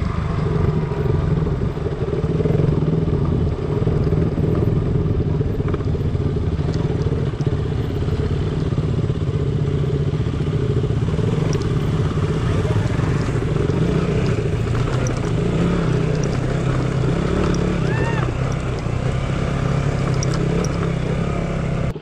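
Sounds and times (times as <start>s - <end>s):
motorcycle engine running: 0.0s - 22.0s
light clicks and rattles: 12.8s - 18.9s, 19.9s - 21.0s.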